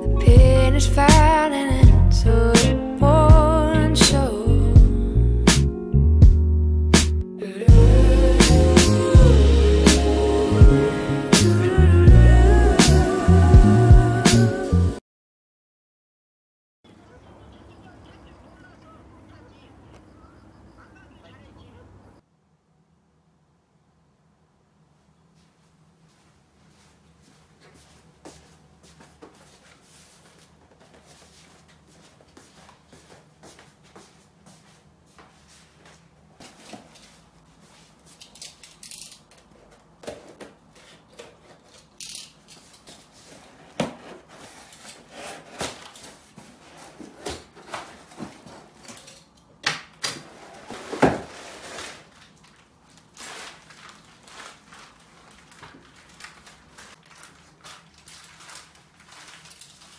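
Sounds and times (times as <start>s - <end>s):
faint room hum: 16.9s - 59.9s
package knocking and rustling: 43.7s - 44.4s, 49.7s - 59.9s.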